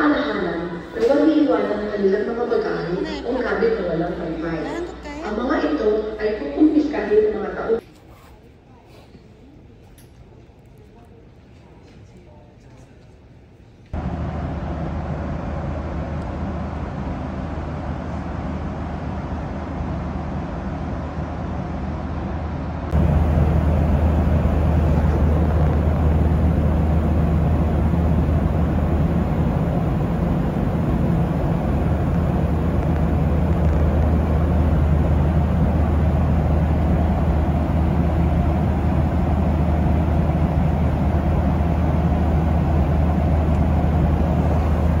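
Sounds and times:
running vehicle rumble: 14.0s - 45.0s.

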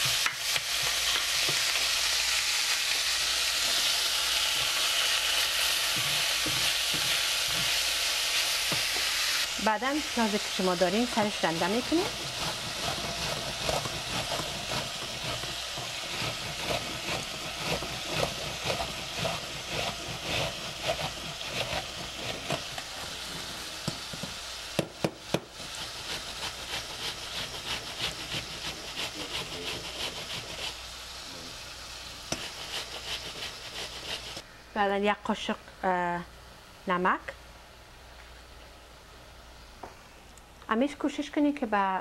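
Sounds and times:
meat sizzling in oil: 0.0s - 34.4s
onion rasping on metal grater: 4.5s - 23.3s, 25.5s - 30.9s, 32.3s - 34.4s.

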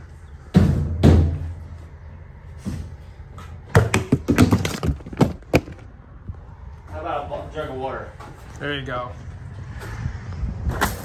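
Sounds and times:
sharp knocks and clatter: 3.7s - 5.8s.

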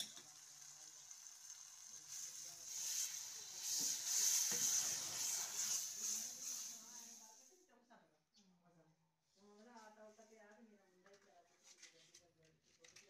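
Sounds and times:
onions sizzling in hot oil: 0.0s - 7.4s.

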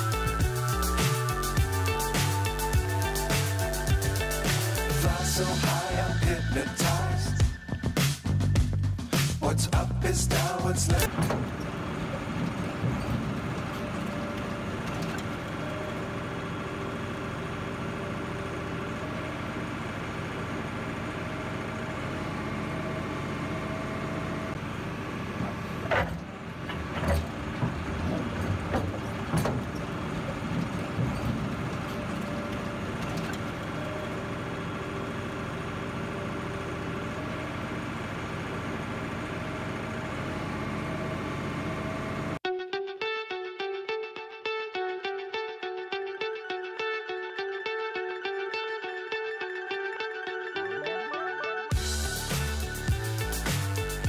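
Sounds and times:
diesel engine running: 0.0s - 42.4s, 51.7s - 54.0s
knocks and clunks: 11.0s - 15.5s, 25.2s - 33.6s.

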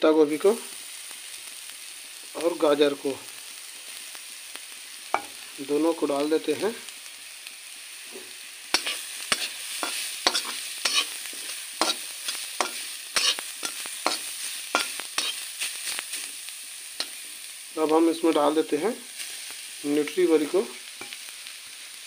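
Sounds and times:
vegetables sizzling in oil: 0.0s - 22.0s
metal spatula scraping pan: 8.2s - 15.4s.

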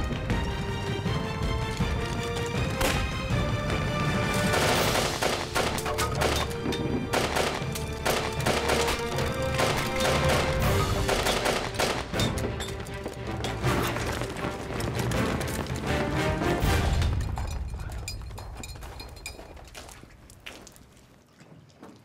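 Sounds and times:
dramatic background music: 0.0s - 18.2s
rapid gunfire: 4.4s - 6.4s, 7.1s - 12.1s.

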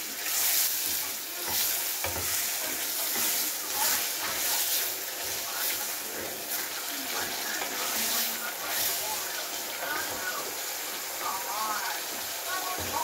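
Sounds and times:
tomatoes sizzling in a saucepan: 0.0s - 13.0s
wooden spoon stirring: 0.2s - 10.3s.

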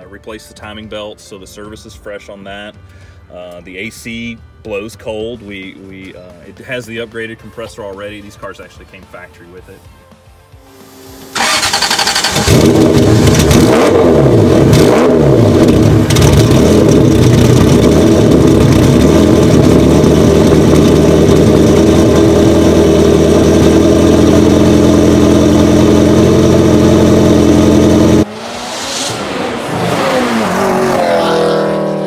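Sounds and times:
car engine revving and idling: 10.6s - 32.0s
car engine cranking: 11.2s - 28.2s.

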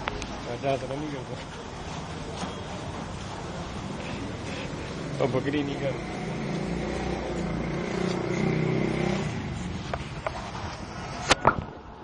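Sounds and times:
vehicle engine passing: 3.8s - 11.3s.

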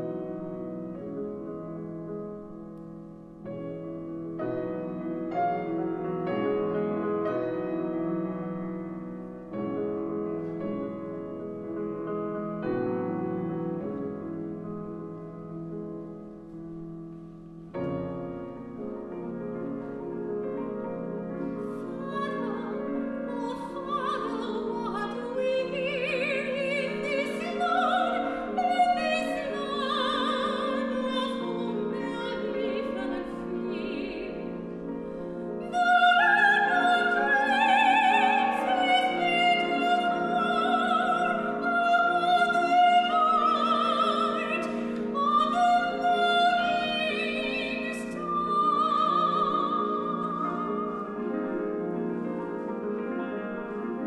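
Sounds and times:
piano accompaniment: 0.0s - 54.0s
soprano singing with vibrato: 21.6s - 51.6s.

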